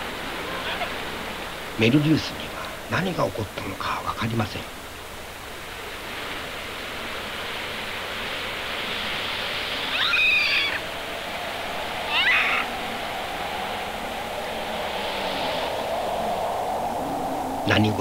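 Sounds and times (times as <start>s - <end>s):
steady rushing noise: 0.0s - 18.0s
monkey shrill cries: 9.9s - 10.8s, 12.1s - 12.7s.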